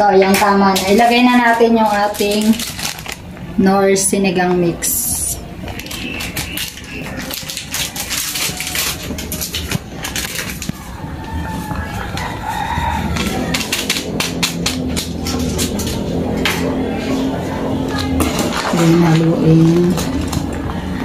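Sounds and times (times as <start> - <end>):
plastic sachet crinkling: 0.8 - 3.5, 5.6 - 14.2
rooster crowing: 10.7 - 15.6.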